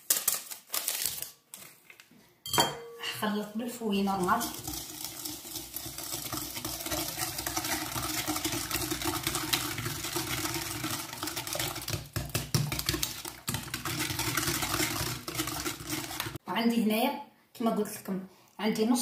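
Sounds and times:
hand whisk clattering in glass bowl: 4.2 - 16.4.

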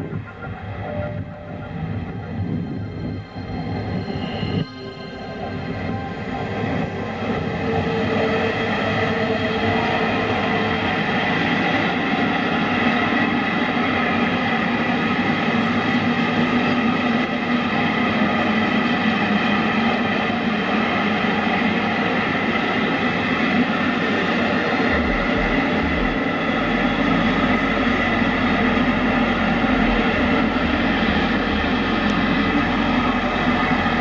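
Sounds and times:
model train running on track: 0.0 - 34.0.

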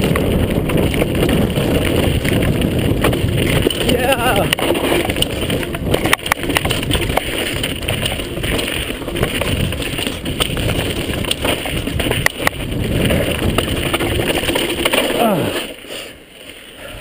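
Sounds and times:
wind noise on microphone: 0.0 - 15.5
mountain bike rattling over rocks: 0.0 - 16.8.

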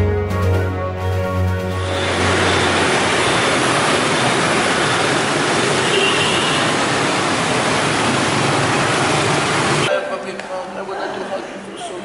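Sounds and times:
dense motorbike traffic roar: 1.8 - 9.9.

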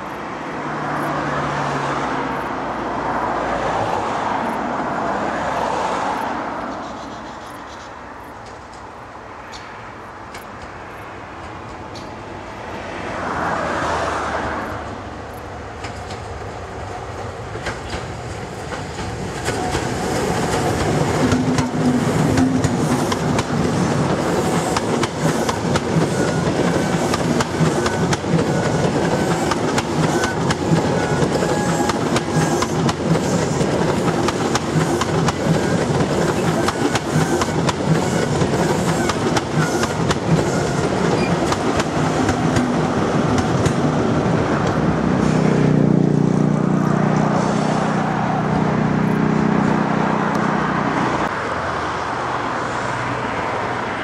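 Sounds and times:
train wheels clicking over rail joints: 7.4 - 12.8, 15.7 - 45.4.

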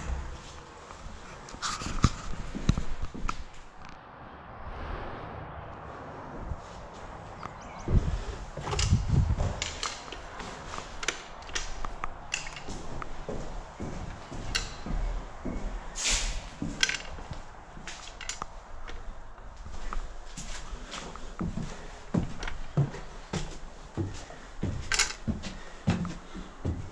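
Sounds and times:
footsteps on wooden floorboards: 6.9 - 26.9
pistol handling knocks and clicks: 11.0 - 12.7, 16.8 - 17.2, 24.9 - 25.2
brief scraping hiss: 16.0 - 16.4.

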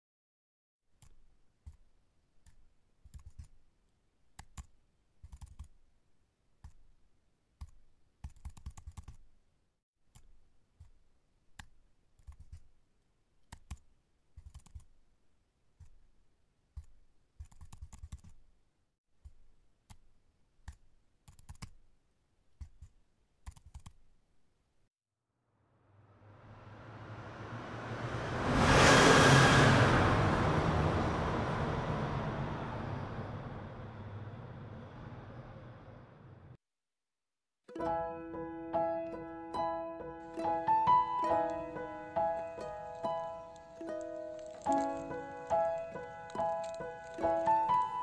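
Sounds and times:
mouse clicking: 1.0 - 3.6, 4.3 - 5.8, 10.1 - 12.7, 13.4 - 15.0, 19.2 - 21.8, 22.6 - 24.0
scroll wheel ticking: 40.9 - 48.0.

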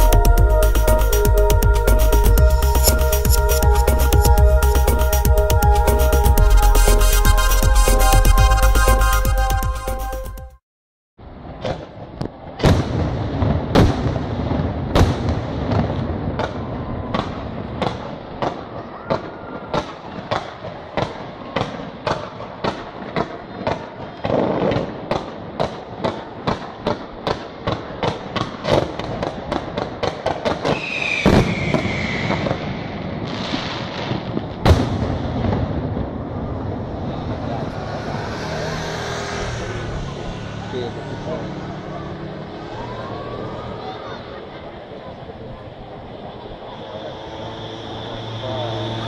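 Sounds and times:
fireworks bangs: 11.3 - 43.1
falling firework whistle: 18.4 - 20.3, 30.5 - 40.5, 46.3 - 49.0.

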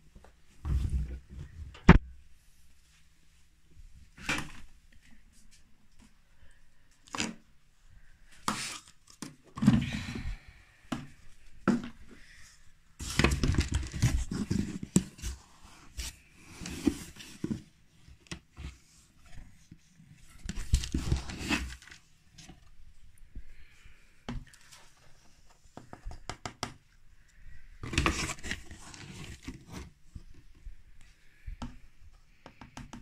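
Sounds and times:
rustling cardboard box: 13.0 - 17.8, 20.2 - 22.0, 27.8 - 30.0.

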